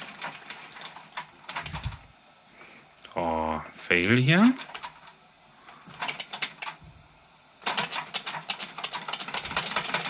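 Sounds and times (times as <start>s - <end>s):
flywheel clicks: 0.0s - 2.0s, 4.4s - 5.2s, 5.9s - 6.8s, 7.6s - 10.0s
toy steam engine chuffing: 7.6s - 10.0s.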